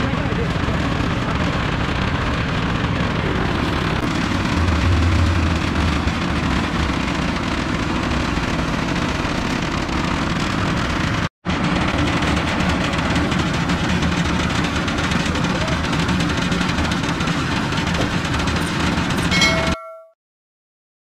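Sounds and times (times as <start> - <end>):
concrete mixer drum turning: 1.2 - 20.1
low rumble: 4.0 - 9.0.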